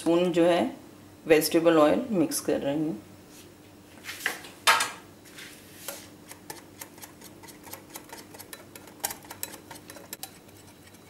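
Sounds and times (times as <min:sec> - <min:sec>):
whisk clicking against glass bowl: 0:06.5 - 0:11.0.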